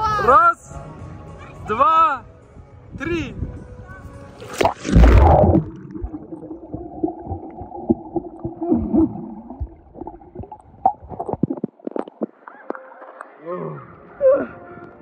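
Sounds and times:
phone splashing into water: 4.4s - 6.4s
underwater gurgling and bubbling: 4.6s - 12.4s.

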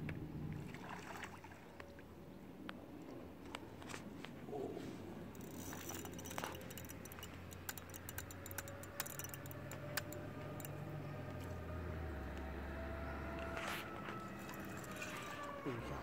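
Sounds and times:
faint handling noise: 3.4s - 10.7s
fishing reel clicking: 5.3s - 10.8s.

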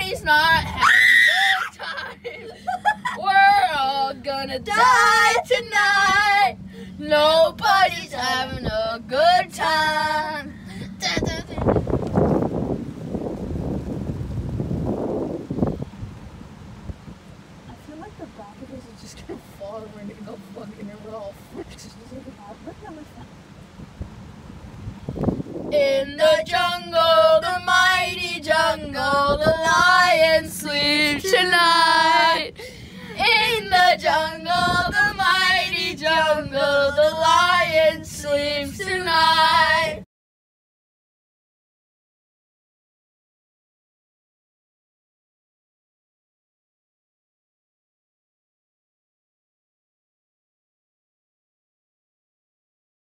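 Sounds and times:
person singing unaccompanied: 0.0s - 11.8s, 25.7s - 40.0s
wind buffeting microphone: 2.6s - 40.0s.

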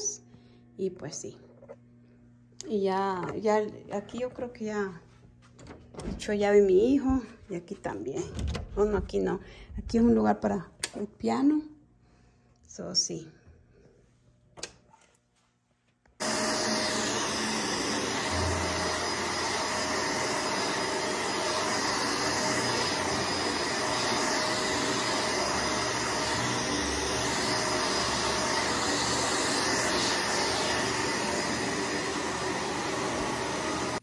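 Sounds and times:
vacuum cleaner running: 16.2s - 34.0s.

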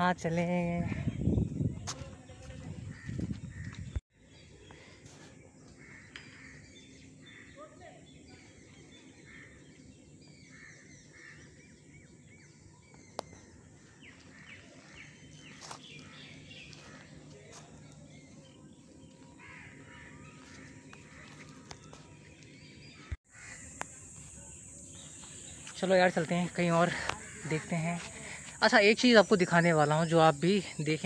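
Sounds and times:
birds calling: 0.0s - 31.0s.

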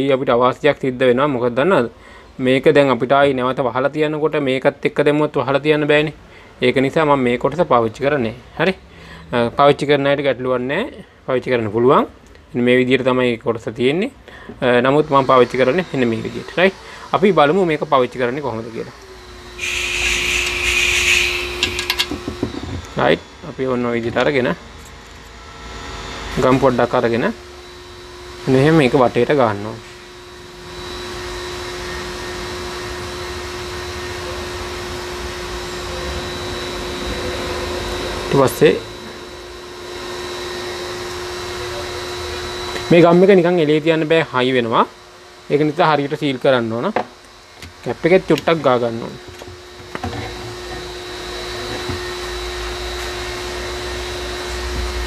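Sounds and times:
constant hum: 0.0s - 55.0s
whooshing fan noise: 5.6s - 55.0s
small electric motor whirring: 14.6s - 42.9s.

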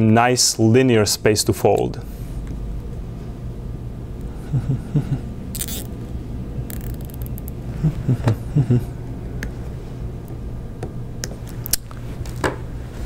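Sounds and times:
low room hum: 0.0s - 13.0s
wires and zip ties handled: 5.5s - 6.0s, 6.7s - 7.6s.

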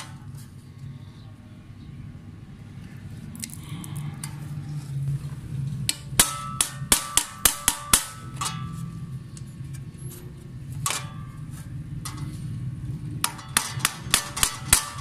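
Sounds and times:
hammer striking metal rivets: 5.9s - 8.8s, 13.2s - 15.0s.

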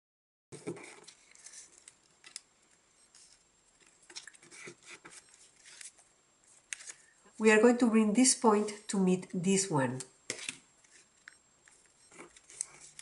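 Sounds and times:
paper being folded and creased: 0.6s - 7.1s, 10.3s - 13.0s.

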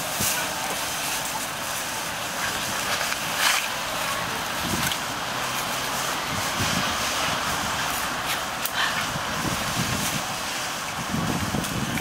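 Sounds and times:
leaves rustling and crunching: 0.0s - 12.0s
outdoor hiss: 0.0s - 12.0s.

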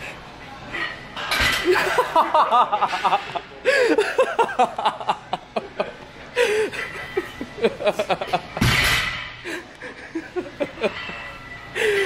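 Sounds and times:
men chuckling: 1.7s - 8.6s, 9.5s - 12.0s.

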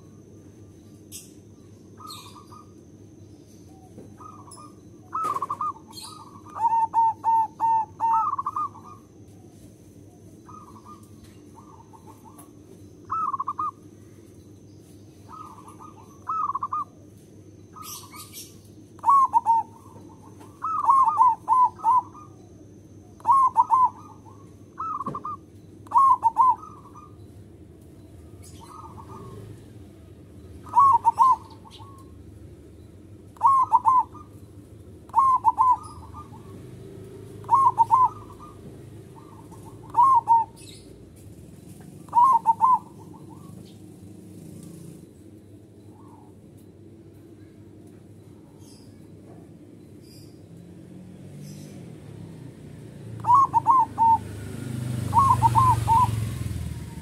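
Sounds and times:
dove cooing: 2.0s - 2.8s, 3.8s - 14.1s, 15.3s - 17.0s, 17.7s - 27.3s, 28.2s - 32.3s, 33.3s - 45.1s, 51.4s - 57.0s.

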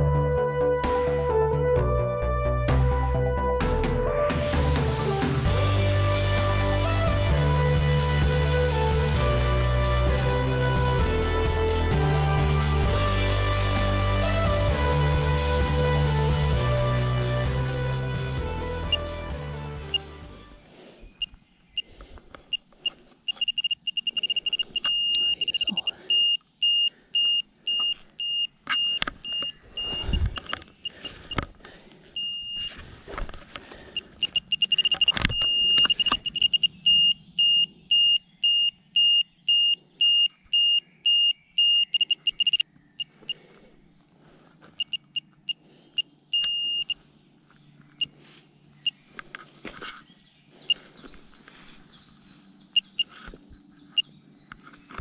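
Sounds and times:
radiation meter beeping: 22.5s - 31.4s, 32.2s - 32.8s, 34.0s - 43.2s, 44.8s - 47.0s, 52.7s - 53.1s.

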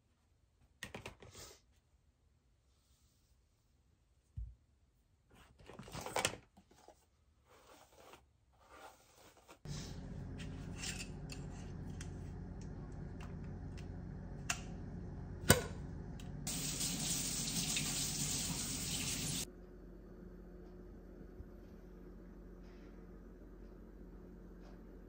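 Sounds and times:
steady low hum: 9.7s - 17.2s, 19.3s - 25.0s
kitchen tap running: 15.4s - 19.5s.

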